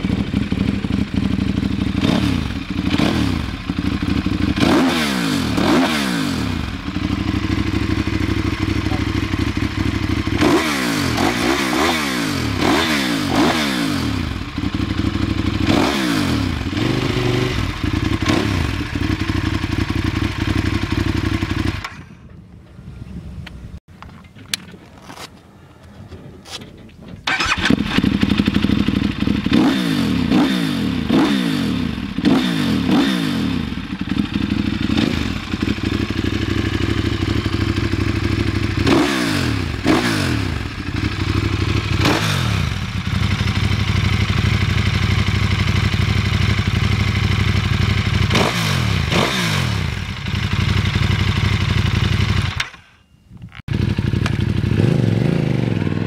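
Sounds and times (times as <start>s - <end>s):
motorcycle engine idling: 0.0s - 4.8s, 6.4s - 11.8s, 14.0s - 22.3s, 27.3s - 52.8s, 53.7s - 56.0s
motorcycle throttle blips: 16.7s - 31.3s, 50.0s - 56.0s.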